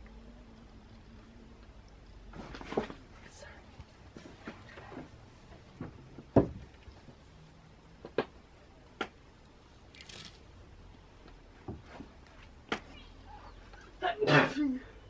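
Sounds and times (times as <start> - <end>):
soft rustle: 1.0 - 7.6
dull thump: 5.8 - 6.7.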